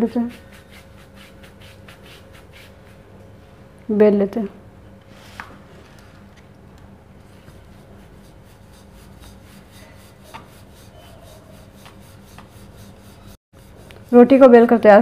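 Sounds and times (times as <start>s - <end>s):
rolling pin rubbing on dough: 0.1s - 3.1s, 7.3s - 15.0s.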